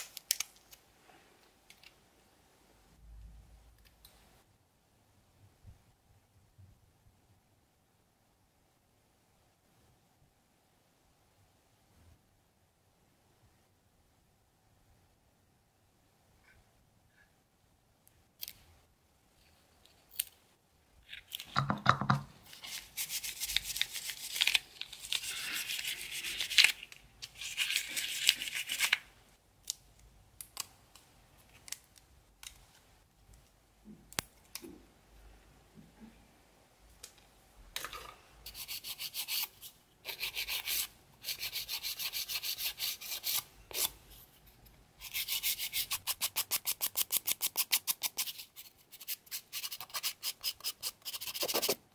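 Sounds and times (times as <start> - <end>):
nail file strokes: 22.6 - 26.8, 38.5 - 44.0, 45.0 - 51.8.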